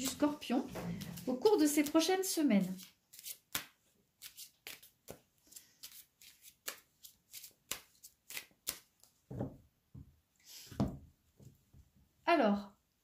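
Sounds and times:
cards shuffled by hand: 2.6s - 9.1s.

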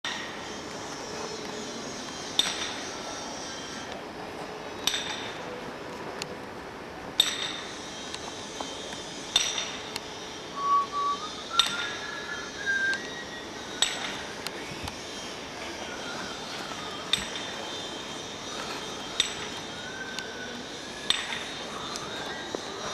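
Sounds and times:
steady hiss: 0.1s - 22.9s
whistled notes: 10.2s - 14.4s.

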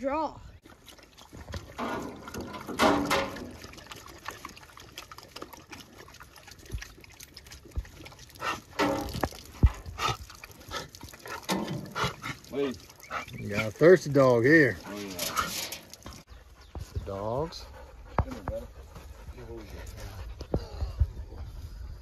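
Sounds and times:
dogs drinking water: 0.5s - 21.1s
water trickling from a tap: 0.6s - 16.3s.

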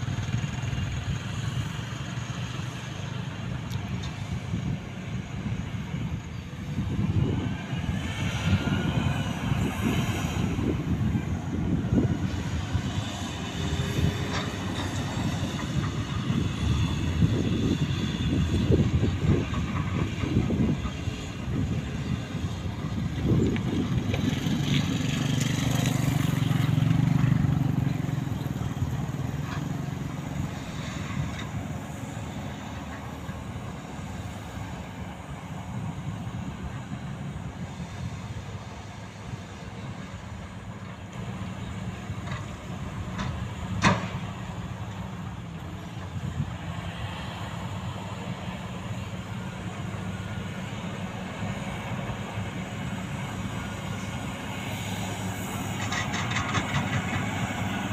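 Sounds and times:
diesel trucks and excavator running: 0.0s - 57.9s.

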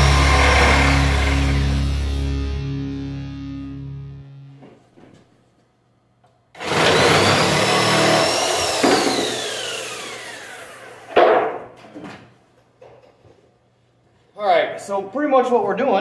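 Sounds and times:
power tool spinning down: 0.0s - 2.4s, 6.6s - 11.2s.

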